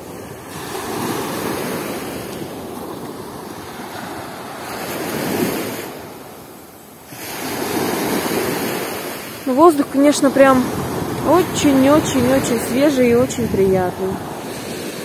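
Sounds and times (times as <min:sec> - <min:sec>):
small waves breaking on sand: 0:00.0 - 0:15.0.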